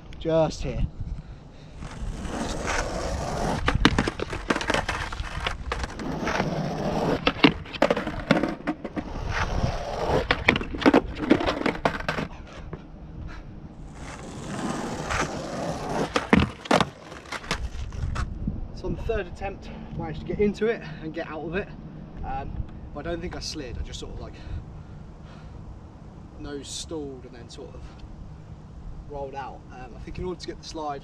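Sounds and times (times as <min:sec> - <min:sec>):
skateboard wheels rolling on asphalt: 0:00.0 - 0:19.5
skateboard wooden clacks: 0:01.8 - 0:09.4, 0:10.0 - 0:12.8, 0:14.0 - 0:18.3.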